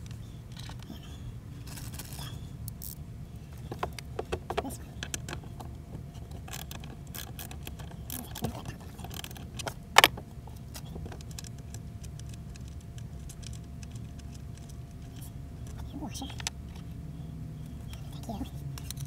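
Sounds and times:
steady low hum: 0:00.0 - 0:19.0
small clicks of wiring handled: 0:05.0 - 0:16.9.

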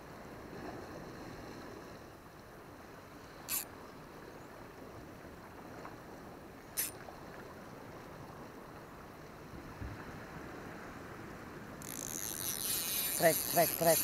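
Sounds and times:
wind: 0:00.0 - 0:14.0
sea wash on rocky shore: 0:02.8 - 0:14.0.

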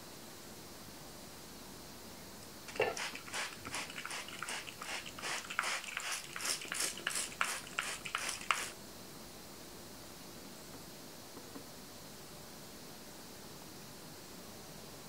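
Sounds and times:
spice grinder crunching: 0:02.7 - 0:08.7.

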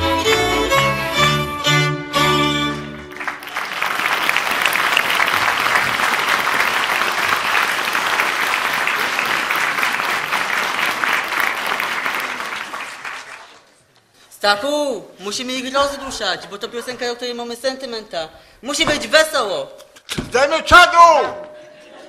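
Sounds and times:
folk band fiddle and bass chord: 0:00.0 - 0:03.2
audience applauding: 0:02.6 - 0:13.8.

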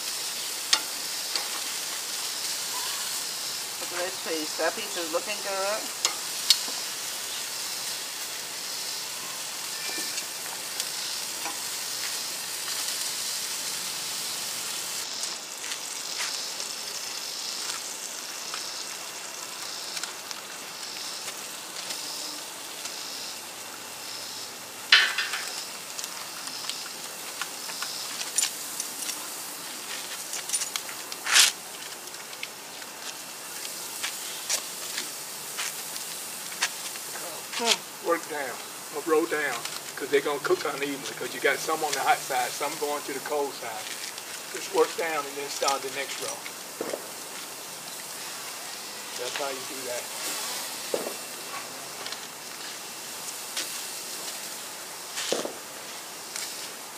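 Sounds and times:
utensils clacking on grill grate: 0:00.0 - 0:08.0, 0:09.6 - 0:16.8, 0:24.9 - 0:48.0
meat sizzling on a grill: 0:00.0 - 0:56.9.

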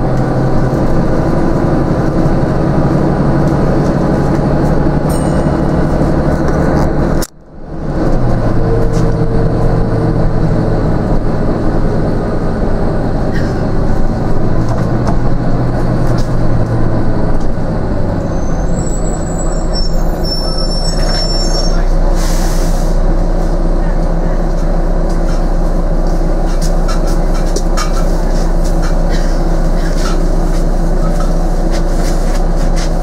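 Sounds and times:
bus engine humming: 0:00.0 - 0:33.0
road noise: 0:00.0 - 0:33.0
faint high squeaks: 0:18.3 - 0:21.9.

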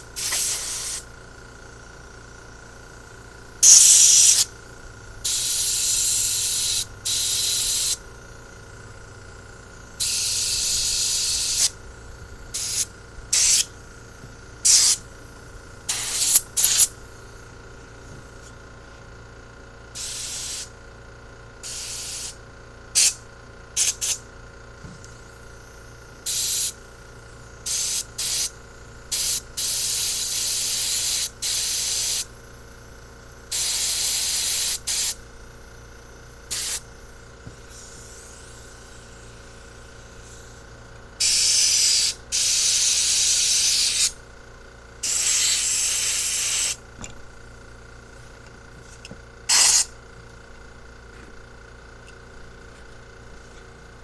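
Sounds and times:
compressed air blow gun hissing: 0:00.0 - 0:01.1, 0:03.6 - 0:04.5, 0:05.2 - 0:08.0, 0:10.0 - 0:11.8, 0:12.5 - 0:13.8, 0:14.6 - 0:15.0, 0:15.9 - 0:16.9, 0:20.0 - 0:20.7, 0:21.6 - 0:22.4, 0:23.8 - 0:24.2, 0:26.2 - 0:26.8, 0:27.6 - 0:32.3, 0:33.5 - 0:35.2, 0:36.5 - 0:40.6, 0:41.2 - 0:44.2, 0:45.0 - 0:46.8, 0:49.5 - 0:49.9.

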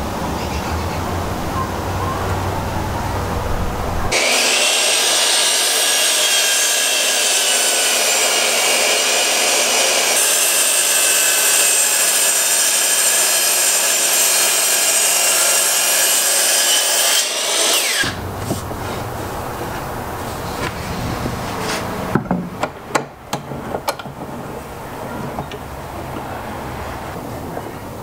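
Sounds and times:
miter saw cutting wood: 0:04.1 - 0:19.1
saw blade spinning down: 0:12.0 - 0:18.2.

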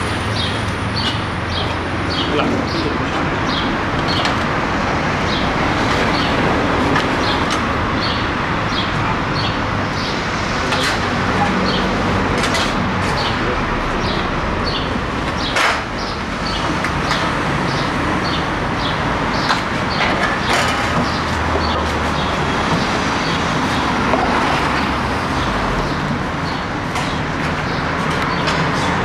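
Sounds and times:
traffic noise: 0:00.0 - 0:29.0
small birds chirping: 0:00.3 - 0:04.4, 0:13.0 - 0:24.1, 0:24.7 - 0:29.0.

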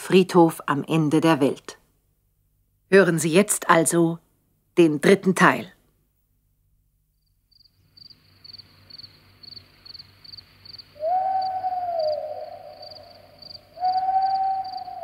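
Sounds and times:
crickets chirping: 0:07.1 - 0:15.0
owl hooting: 0:10.8 - 0:15.0.

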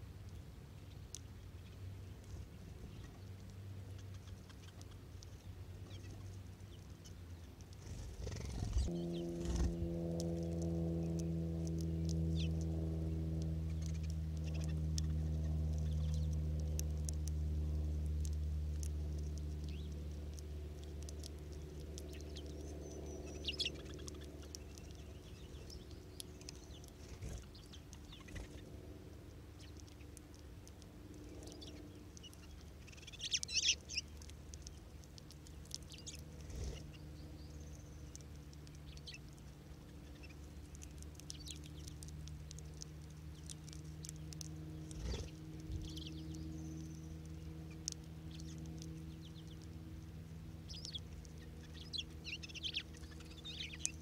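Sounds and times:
low steady hum: 0:00.0 - 0:54.0
seed pecking clicks: 0:00.2 - 0:54.0
finches chirping: 0:03.9 - 0:09.9, 0:12.0 - 0:12.6, 0:13.6 - 0:16.4, 0:20.8 - 0:28.7, 0:31.1 - 0:49.8, 0:50.6 - 0:54.0.

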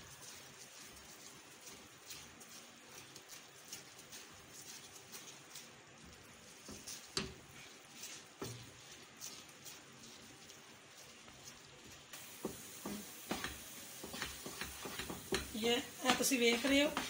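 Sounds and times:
utensil scraping and tapping a pan: 0:06.5 - 0:09.8, 0:12.2 - 0:17.0.

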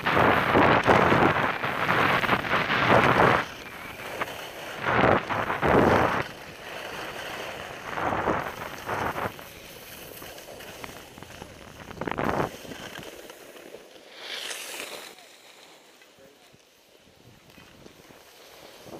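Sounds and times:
wind on microphone: 0:00.0 - 0:13.0
skis hissing on snow: 0:00.0 - 0:16.2.

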